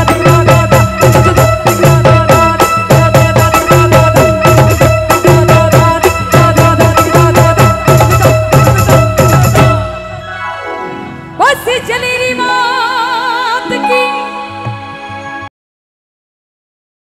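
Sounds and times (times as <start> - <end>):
fast drum rhythm: 0.0 - 10.0
jingling percussion: 0.0 - 10.6.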